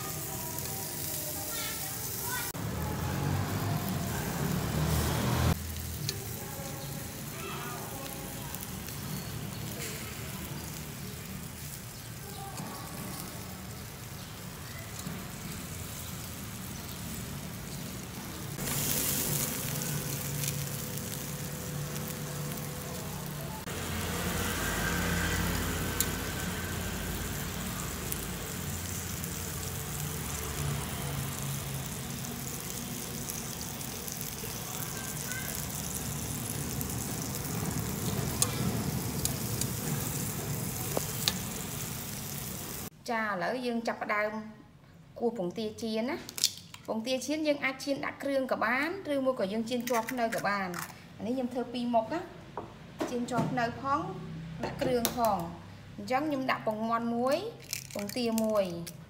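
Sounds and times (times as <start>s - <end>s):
meat sizzling on a grill: 0.0s - 43.0s.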